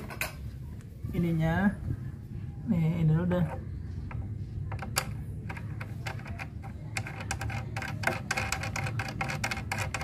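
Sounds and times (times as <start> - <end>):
metal nut clicking and rattling: 4.1 - 10.0.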